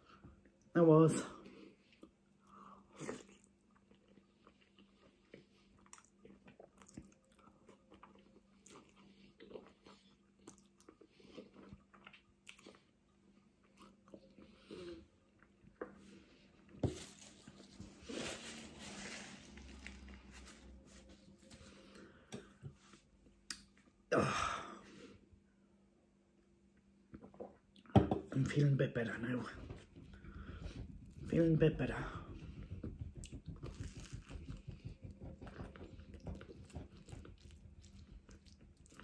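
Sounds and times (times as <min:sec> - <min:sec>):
chewing with wet mouth clicks: 0:03.0 - 0:14.4, 0:35.4 - 0:39.0.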